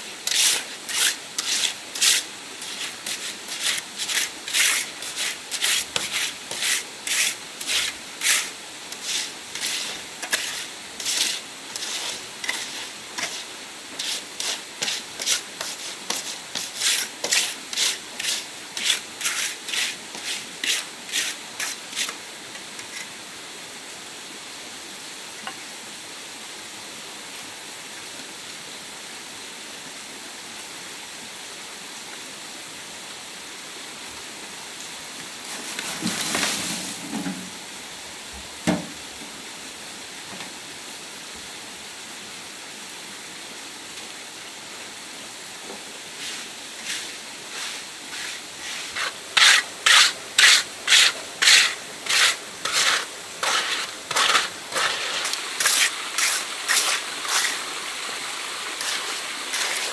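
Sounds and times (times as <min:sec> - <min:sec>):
running water: 0:00.0 - 0:22.2, 0:46.0 - 0:59.9
hand tool scraping wood: 0:00.2 - 0:22.2, 0:46.3 - 0:57.6, 0:58.7 - 0:59.9.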